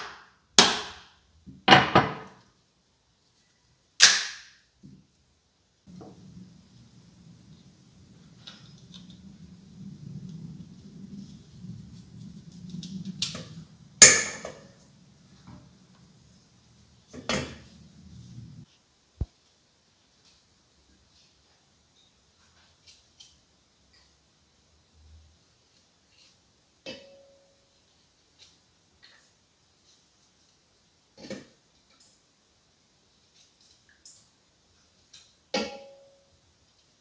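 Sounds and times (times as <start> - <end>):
coconut shell cracking: 4.0 - 4.5.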